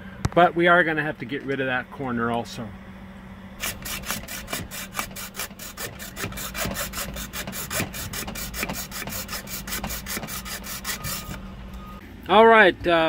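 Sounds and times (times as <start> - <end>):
hacksaw cutting metal plate: 3.6 - 11.4.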